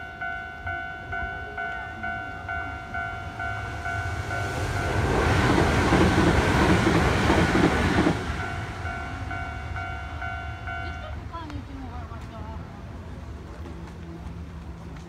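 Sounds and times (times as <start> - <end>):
level-crossing warning bell: 0.0 - 11.9
train rumbling past: 0.0 - 15.0.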